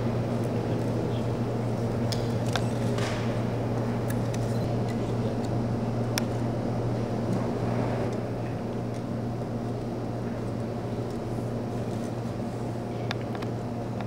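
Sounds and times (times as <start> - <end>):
constant low hum: 0.0 - 14.0.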